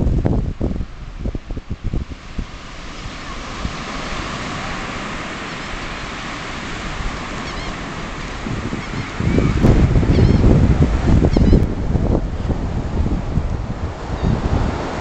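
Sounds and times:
ocean surf breaking on beach: 0.0 - 15.0
wind buffeting microphone: 0.0 - 15.0
faint high bird calls: 7.4 - 7.8, 8.8 - 10.5, 11.3 - 11.6.

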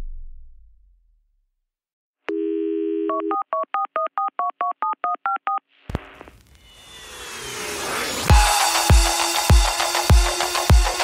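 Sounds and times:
telephone dial tone: 2.3 - 5.6
touch-tone dialing beeps: 3.1 - 5.6
whoosh: 5.9 - 8.8.

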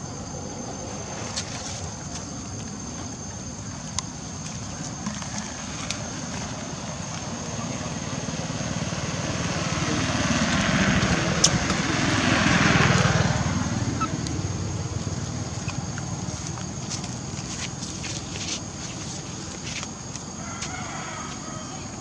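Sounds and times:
vehicle engine passing by: 6.0 - 16.0.

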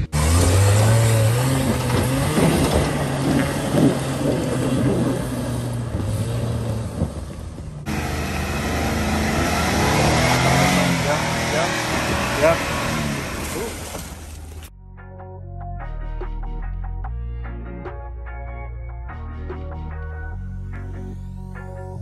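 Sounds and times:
car engine pulling under load: 0.0 - 14.7.

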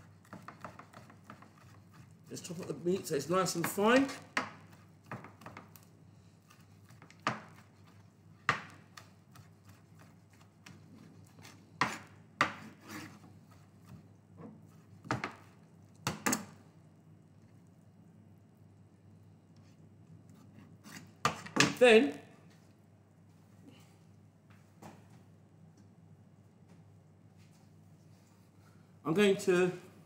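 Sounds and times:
knife chopping on plastic board: 0.1 - 2.1, 3.6 - 5.8, 6.5 - 10.8, 11.4 - 13.1, 13.8 - 16.4.

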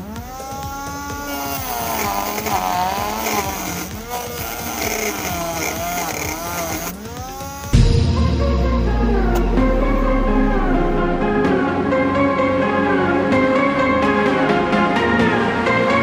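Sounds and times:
small electric motor whining: 0.0 - 7.8.

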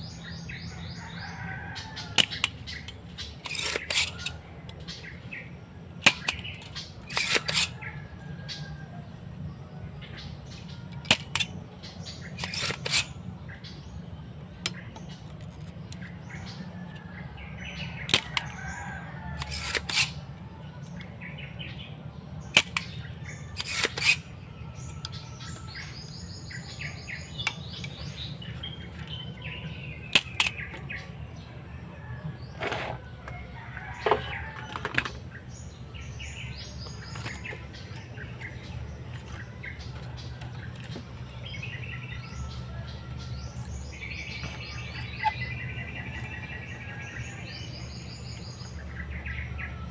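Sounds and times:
steady low hum: 0.0 - 49.9
desoldering pump snapping: 1.6 - 5.2, 6.0 - 7.9, 10.9 - 11.6, 14.6 - 16.1, 18.0 - 20.2, 22.5 - 23.0, 30.1 - 31.0.

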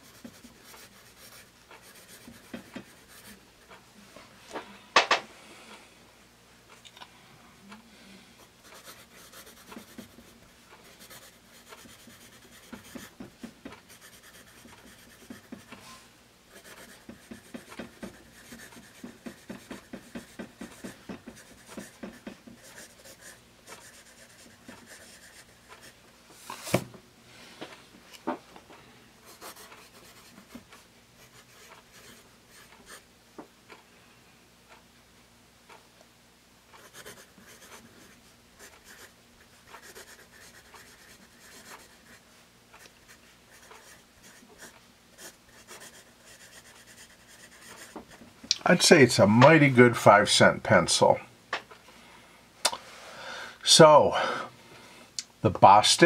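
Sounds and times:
pencil scratching on paper: 0.0 - 3.4, 8.6 - 15.8, 16.5 - 26.0, 29.3 - 30.6, 31.2 - 33.0, 36.8 - 42.2, 42.8 - 48.2.

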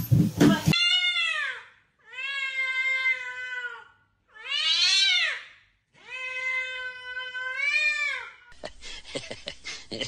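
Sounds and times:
cat yowling: 0.7 - 8.4.

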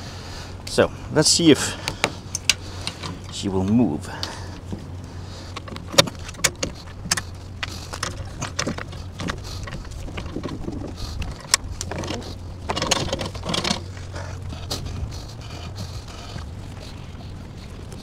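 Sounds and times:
steady low hum: 0.0 - 18.0
metallic clicks and rattles: 5.5 - 13.9.

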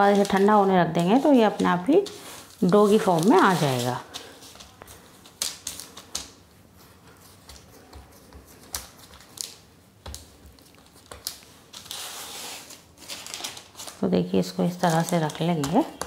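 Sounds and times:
paper crinkling: 0.0 - 16.0
hands patting dough: 14.8 - 16.0.

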